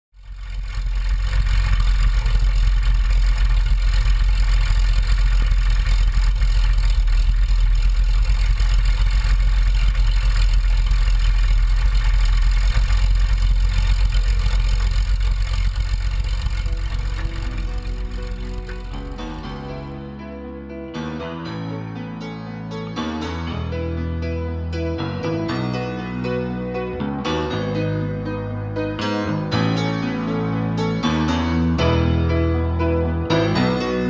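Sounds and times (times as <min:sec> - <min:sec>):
aircraft piston engine idling: 0:00.2 - 0:20.0.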